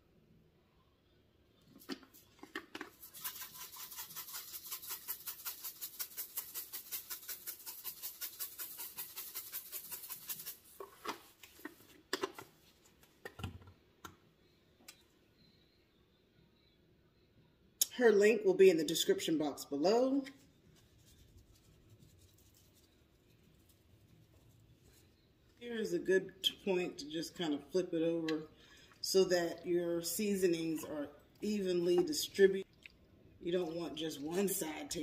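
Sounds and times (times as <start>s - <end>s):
shakers clicking and knocking: 1.8s - 12.4s
seasoning shaker rattling: 2.1s - 11.0s.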